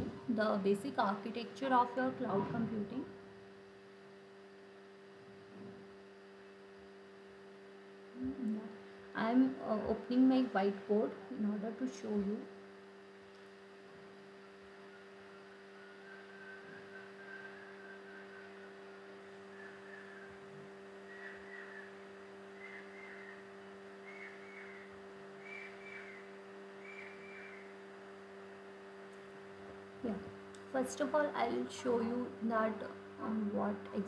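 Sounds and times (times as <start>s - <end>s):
low electrical hum: 0.0s - 34.0s
faint whistled notes rising: 14.8s - 27.8s.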